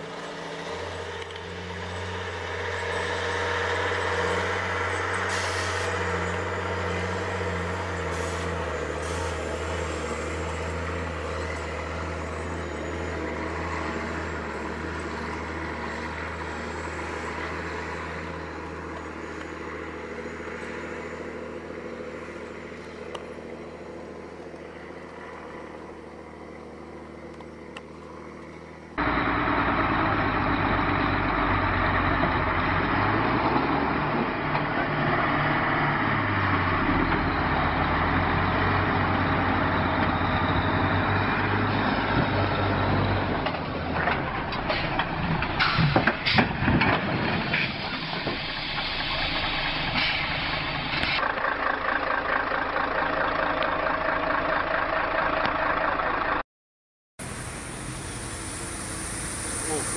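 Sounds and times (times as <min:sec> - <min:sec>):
truck diesel engine droning: 0:00.0 - 0:56.4, 0:57.2 - 0:59.9
brief hisses: 0:05.3 - 0:06.0.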